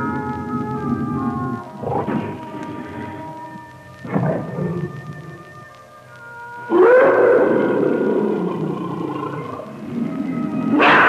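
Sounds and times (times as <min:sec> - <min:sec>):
sustained droning tones: 0:00.0 - 0:11.0
animal-like cry rising in pitch: 0:06.7 - 0:09.7.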